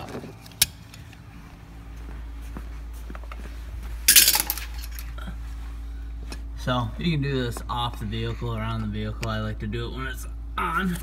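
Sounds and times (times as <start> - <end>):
low steady hum: 0.0 - 11.0
tools clattering: 4.0 - 5.2
metal hand tools clinking: 4.1 - 5.1.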